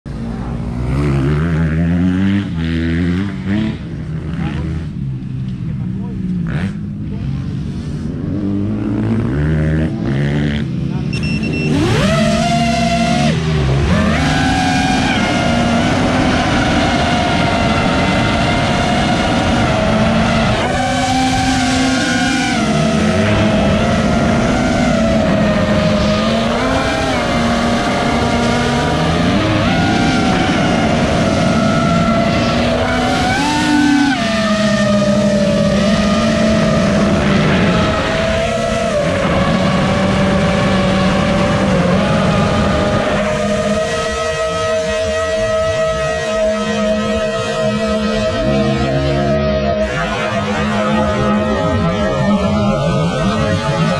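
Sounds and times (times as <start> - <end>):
drone motors whining: 11.0 - 53.9.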